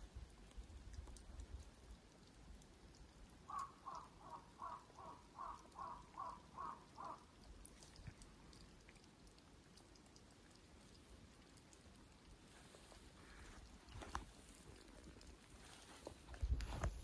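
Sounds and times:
crow cawing: 3.5s - 7.3s.

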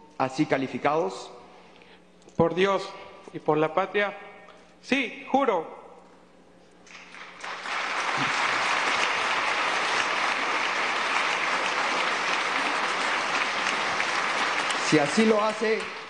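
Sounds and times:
people applauding: 6.9s - 16.0s.

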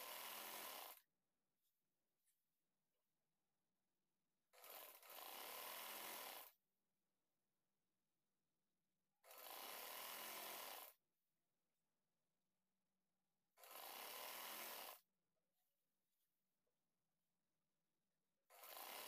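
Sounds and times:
sewing machine stitching: 4.5s - 6.5s, 9.2s - 10.9s, 18.5s - 19.0s.

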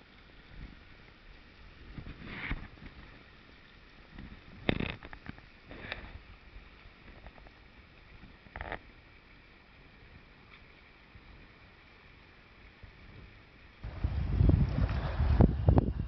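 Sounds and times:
stream running over riffles: 0.0s - 16.0s
knocks and sloshes: 13.8s - 16.0s.

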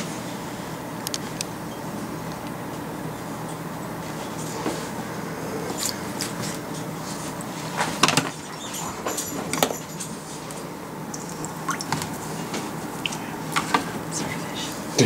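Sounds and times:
steady low hum: 0.0s - 15.0s
water splashing: 11.1s - 13.2s.

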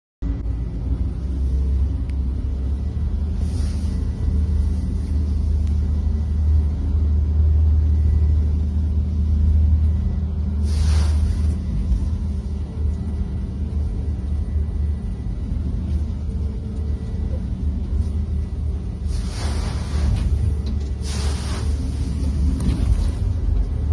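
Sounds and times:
boat engines droning: 0.2s - 23.9s
spray hissing against boat: 10.6s - 11.6s, 19.1s - 20.4s, 21.0s - 22.4s.

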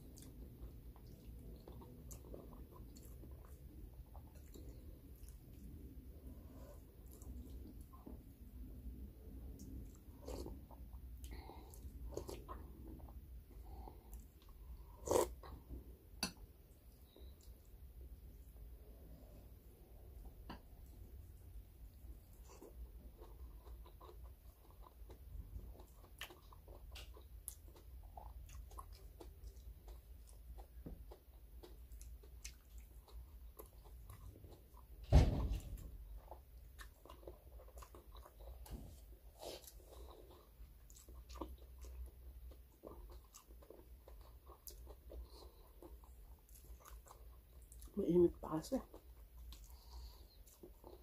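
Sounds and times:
quiet chewing: 0.0s - 35.0s, 35.6s - 51.0s
low steady hum: 0.0s - 51.0s
loud thump: 35.0s - 35.8s.

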